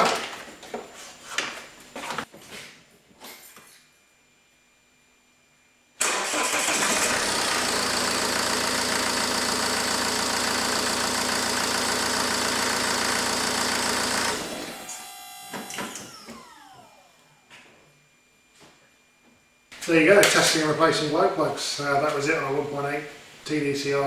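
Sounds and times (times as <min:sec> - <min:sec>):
diesel engine starting and idling: 0:06.0 - 0:17.2
engine winding down: 0:06.0 - 0:17.4.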